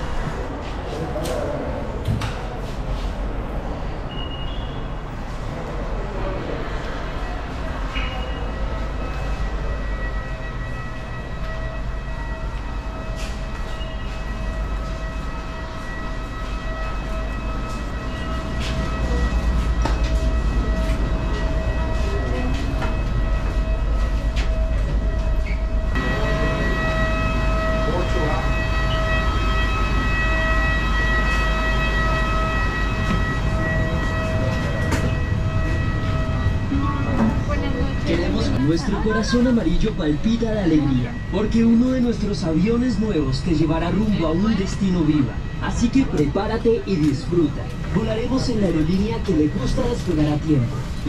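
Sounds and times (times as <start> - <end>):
aircraft engine rumble and whine: 5.6 - 51.0
footsteps: 16.0 - 26.0.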